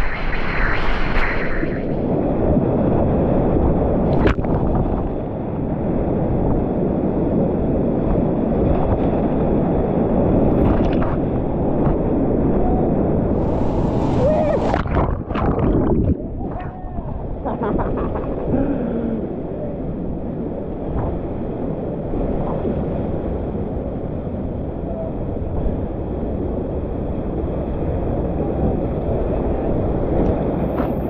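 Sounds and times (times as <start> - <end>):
whitewater rapids roaring: 13.4 - 15.0.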